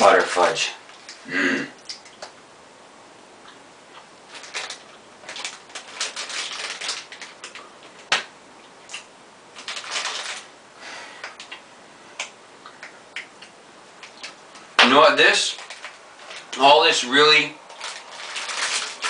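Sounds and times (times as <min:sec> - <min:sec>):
plastic bag crinkling: 0:04.3 - 0:08.1, 0:08.9 - 0:10.5, 0:15.0 - 0:19.0.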